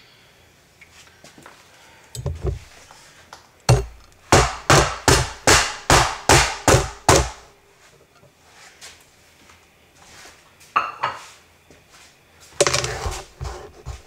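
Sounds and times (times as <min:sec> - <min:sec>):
pan pounding seeds on cutting board: 0:03.7 - 0:07.4, 0:12.6 - 0:14.0.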